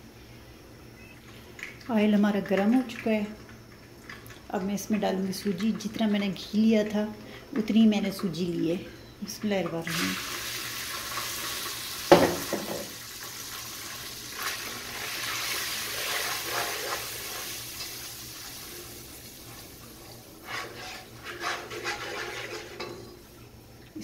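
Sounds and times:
semolina sizzling in hot fat: 0.9 - 24.0
spatula scraping pot: 15.8 - 17.5, 20.0 - 23.1.

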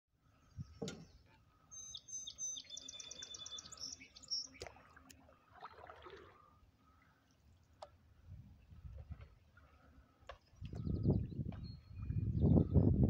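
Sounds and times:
songbird singing: 0.3 - 5.0, 10.3 - 13.0.

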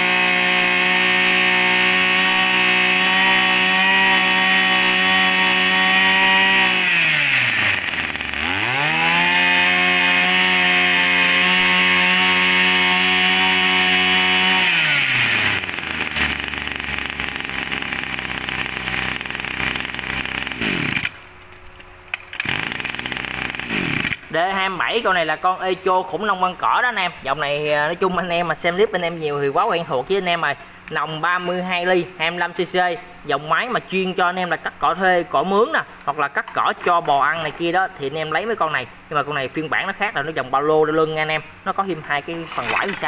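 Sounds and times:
brush cutter engine revving: 0.0 - 21.2, 22.1 - 24.4, 42.0 - 43.0.

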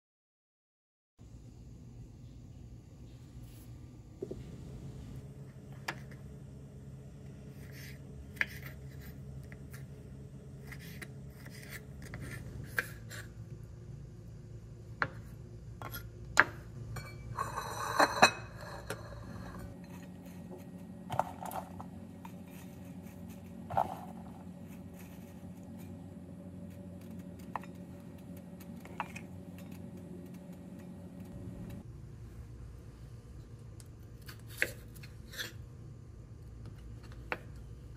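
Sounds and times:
low background hum: 1.2 - 37.9
dishes and utensils clinking: 16.9 - 20.1
dishes clattering: 17.0 - 19.7.

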